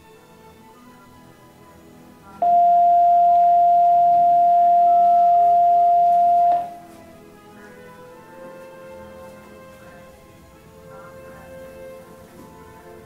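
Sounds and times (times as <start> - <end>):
quiet background music: 0.0 - 13.0
loud electronic beep: 2.4 - 6.7.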